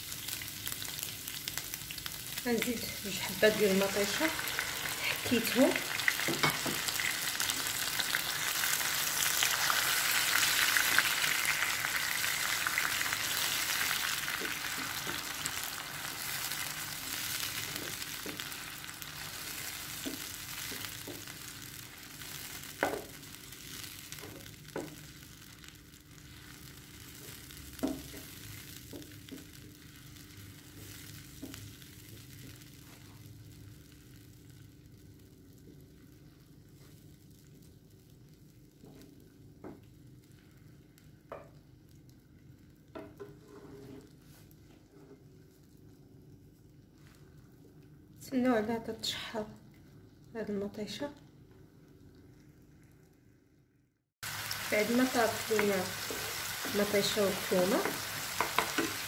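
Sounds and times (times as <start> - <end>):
tomato sizzling in oil: 0.0 - 44.6, 54.2 - 59.0
spoon knocking against pan: 57.8 - 59.0.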